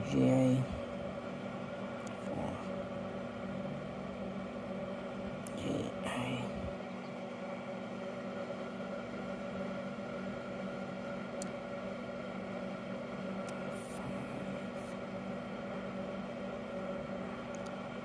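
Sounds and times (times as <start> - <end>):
electrical hum and whir: 0.0 - 18.0.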